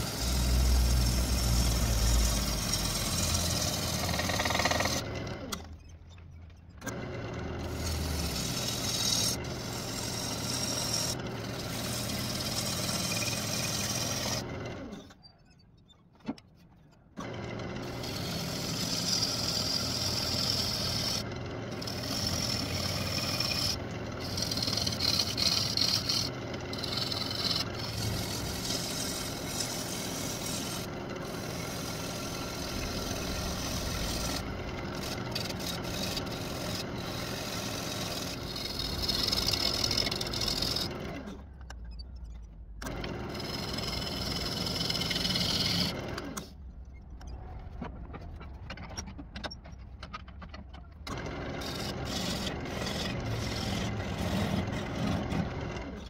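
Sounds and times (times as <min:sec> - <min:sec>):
wood lathe motor hum: 0:00.0 - 0:05.7, 0:06.8 - 0:14.9, 0:17.2 - 0:41.4, 0:42.8 - 0:46.5, 0:51.1 - 0:56.0
turning tool scraping wood: 0:00.0 - 0:05.9, 0:06.8 - 0:15.0, 0:17.2 - 0:41.4, 0:42.8 - 0:46.5, 0:51.1 - 0:56.0.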